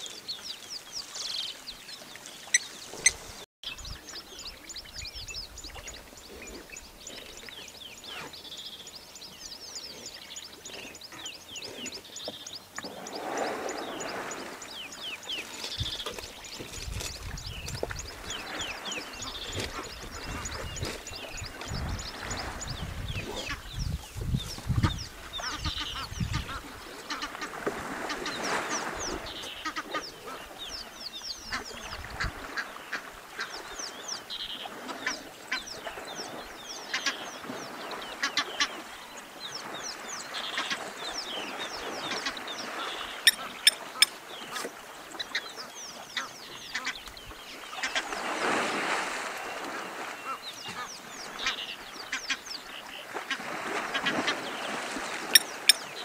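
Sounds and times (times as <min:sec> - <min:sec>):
elephants splashing in water: 0:12.8 - 0:23.0, 0:26.7 - 0:29.5, 0:47.8 - 0:50.6, 0:53.0 - 0:56.0
short high bird calls: 0:42.7 - 0:44.2.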